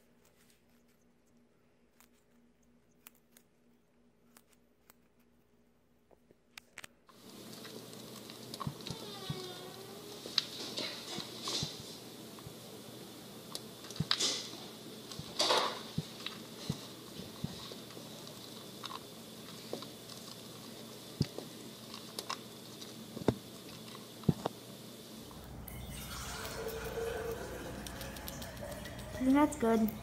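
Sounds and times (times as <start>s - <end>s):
hamster nibbling pellets: 0.0s - 25.8s, 26.4s - 30.0s.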